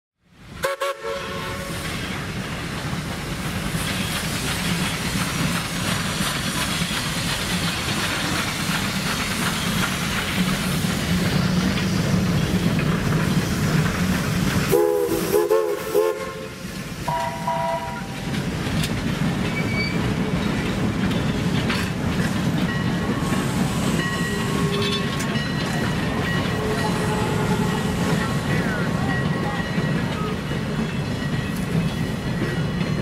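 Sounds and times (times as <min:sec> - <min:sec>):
rail cars rumbling and clattering: 0:00.2 - 0:33.0
steam locomotive whistle: 0:00.6 - 0:02.0, 0:14.7 - 0:18.2, 0:23.4 - 0:25.0, 0:26.5 - 0:28.2.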